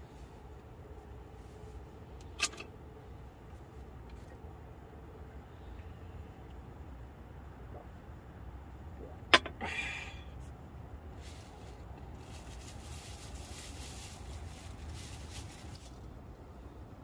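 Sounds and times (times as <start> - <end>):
plastic wrap crinkling: 11.2 - 16.1.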